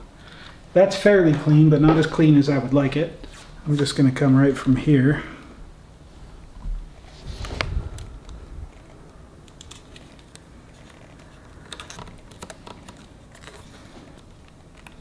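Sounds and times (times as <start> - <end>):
tape crackling off roll: 7.0 - 15.0.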